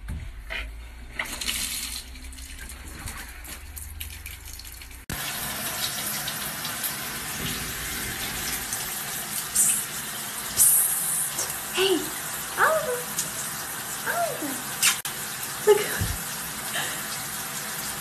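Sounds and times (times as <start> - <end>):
shower spray running: 5.1 - 18.0.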